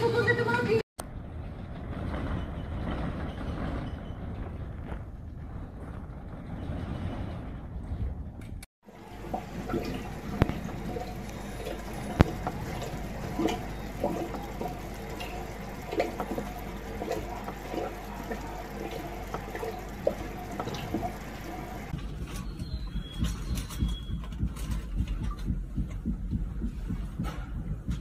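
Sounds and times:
low rumbling background: 1.0 - 28.0
knocks and rattles: 1.4 - 28.0
water sloshing in aquarium: 8.8 - 25.6.

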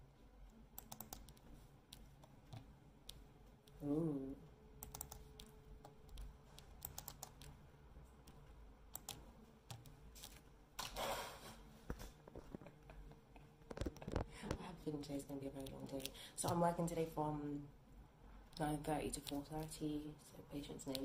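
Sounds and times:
faint steady hum: 0.0 - 21.0
typing on computer keyboard: 0.8 - 2.7, 4.8 - 7.6, 8.2 - 10.0.

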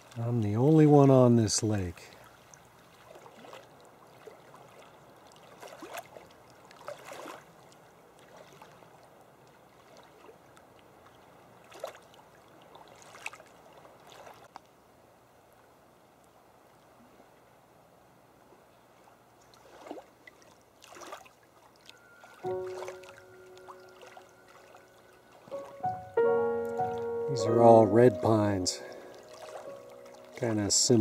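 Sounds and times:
waves lapping on rocky shore: 0.0 - 14.6, 19.0 - 25.9, 28.0 - 31.0.

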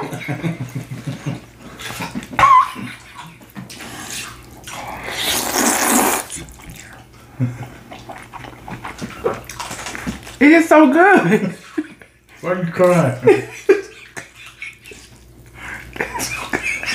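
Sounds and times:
wet chewing noises: 1.3 - 10.4, 14.0 - 16.6
person slurping noodles: 3.8 - 6.4.

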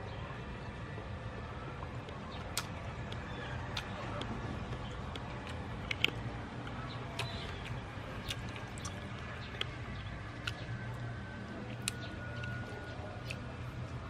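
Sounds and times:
low outdoor background hum: 0.0 - 14.0.

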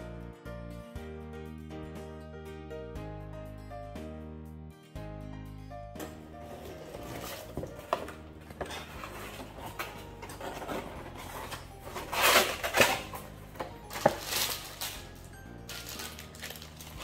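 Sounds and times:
plastic packaging rustling: 6.4 - 17.0.

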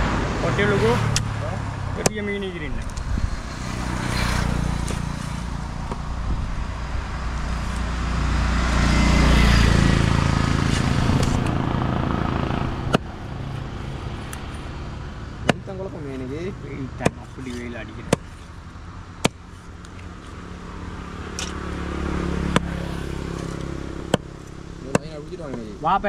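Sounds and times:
vehicle engine passing by: 0.0 - 18.1, 20.4 - 25.8.

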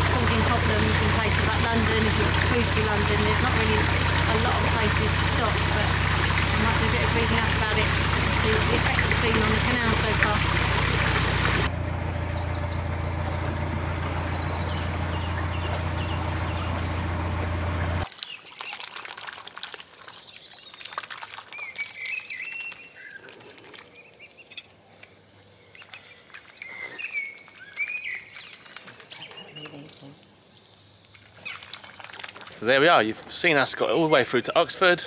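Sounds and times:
boat engine humming: 0.0 - 18.1
small birds chirping: 12.1 - 16.8, 19.6 - 35.0.

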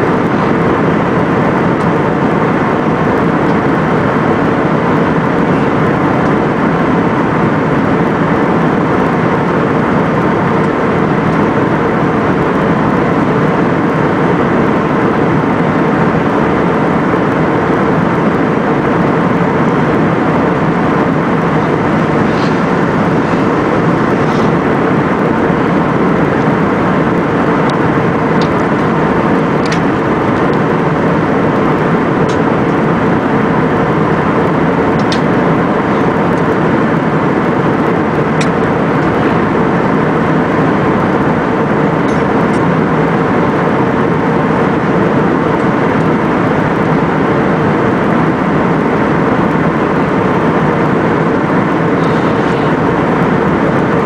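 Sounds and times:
airliner cabin engine noise: 0.0 - 54.0
low hum: 0.0 - 54.0.

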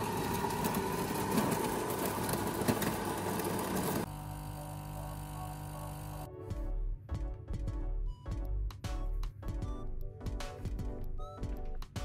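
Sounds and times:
coffee grinder grinding: 0.0 - 6.3
espresso machine pump humming: 0.0 - 6.3.

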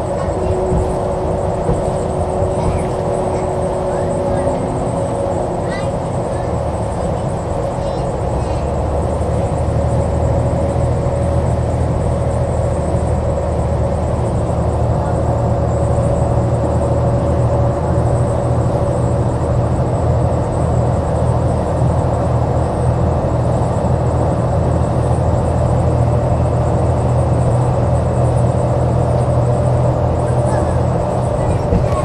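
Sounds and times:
bus engine drone: 0.0 - 32.0
bus whine: 0.0 - 32.0.

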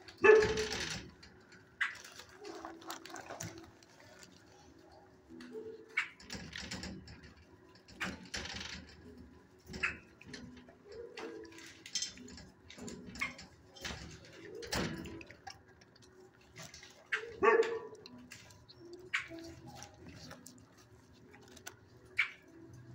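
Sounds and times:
dogs barking: 0.0 - 1.0, 17.1 - 20.5
knocks and clatter: 0.0 - 4.3, 5.3 - 22.9.

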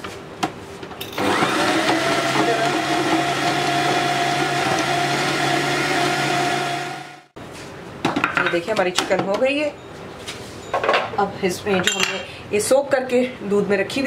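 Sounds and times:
food processor motor humming: 1.2 - 7.3.

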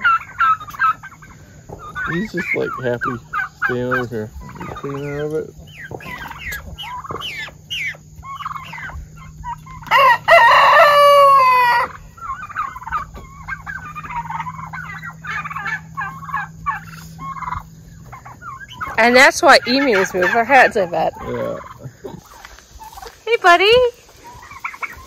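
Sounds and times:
turkeys clucking: 0.0 - 25.0
rooster crowing: 9.5 - 12.6.

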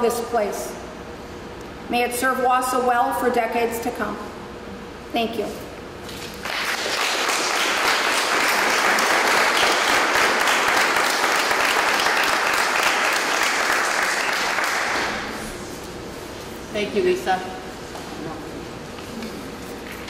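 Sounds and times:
crowd applauding: 6.4 - 15.3.

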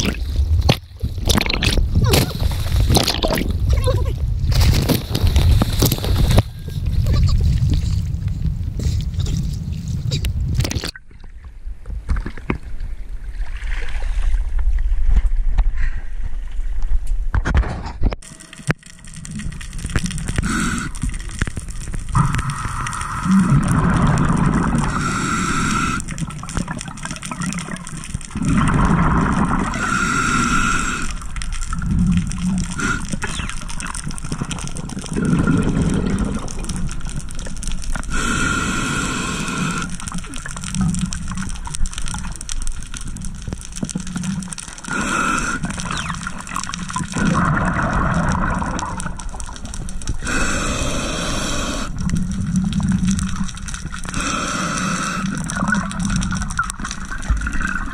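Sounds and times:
bubbling exhalations: 0.0 - 11.0, 19.2 - 57.9
regulator hissing inhalations: 24.9 - 26.0, 38.1 - 40.0, 44.9 - 46.1, 50.2 - 52.0, 54.1 - 55.4.

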